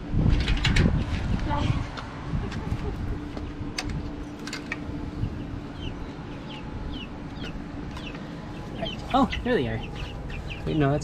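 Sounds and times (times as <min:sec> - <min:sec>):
chicks peeping: 0:05.1 - 0:11.0.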